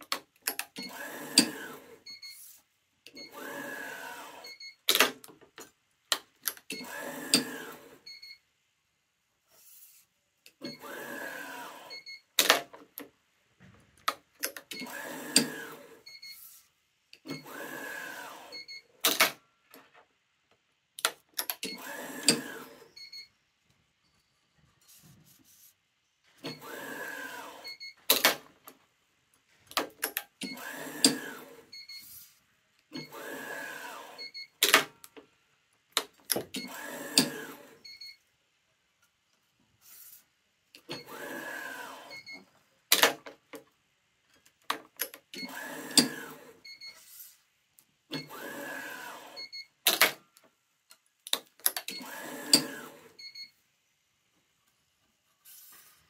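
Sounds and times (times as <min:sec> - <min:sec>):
stringing machine motor running: 0:00.8 - 0:02.0, 0:03.3 - 0:04.5, 0:06.8 - 0:08.0, 0:10.7 - 0:12.0, 0:14.8 - 0:16.0, 0:17.4 - 0:18.6, 0:21.7 - 0:22.9, 0:26.5 - 0:28.2, 0:30.4 - 0:31.7, 0:33.0 - 0:34.4, 0:36.6 - 0:37.8, 0:41.0 - 0:42.2, 0:45.4 - 0:46.6, 0:48.2 - 0:49.4, 0:52.0 - 0:53.2.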